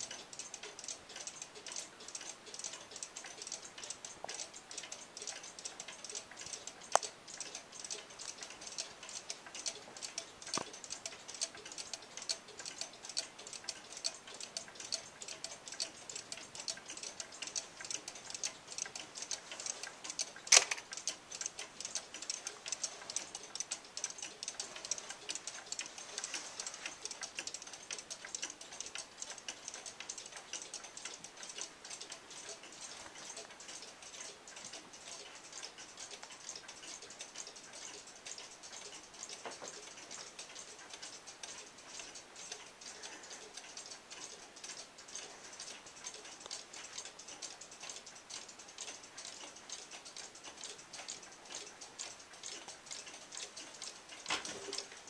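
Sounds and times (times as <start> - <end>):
clocks ticking: 0.0 - 55.0
sharp clicks: 0.0 - 55.0.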